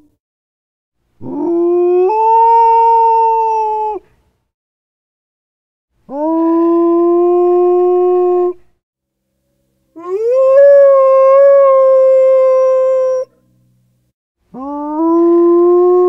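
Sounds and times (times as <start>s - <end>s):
dog howling: 10.0s - 13.3s.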